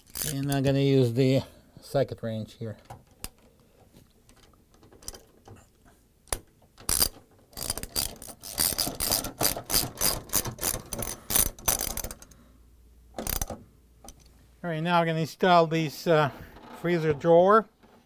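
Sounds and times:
ratchet wrench clicking: 6.9s - 12.4s, 13.2s - 13.5s.

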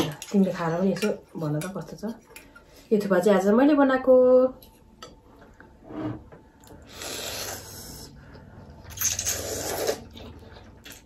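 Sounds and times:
noodles being slurped: 6.9s - 8.2s, 8.8s - 11.0s.

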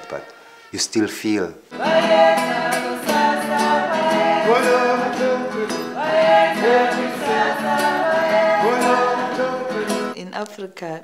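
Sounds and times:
voices singing in harmony: 1.7s - 10.2s.

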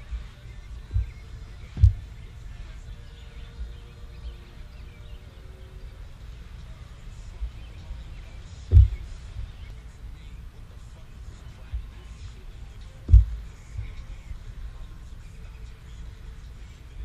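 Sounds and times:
wind rumble on microphone: 0.0s - 17.0s
sharp thump: 0.9s - 2.1s, 8.7s - 9.2s, 13.0s - 14.0s
soft knocks: 0.9s - 2.1s, 8.7s - 9.2s, 13.0s - 14.1s.

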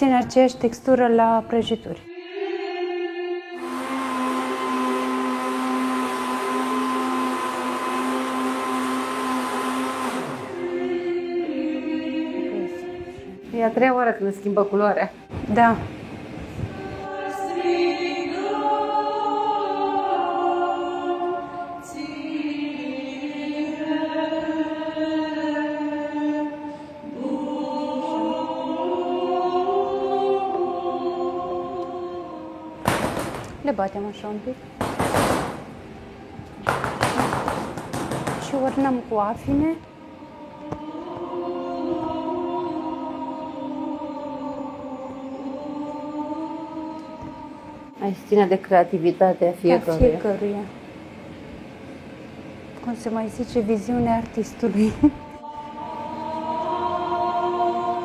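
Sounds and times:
choir singing a slow chant: 1.9s - 14.3s, 15.1s - 48.5s, 54.6s - 58.0s
blender running: 3.6s - 10.8s.

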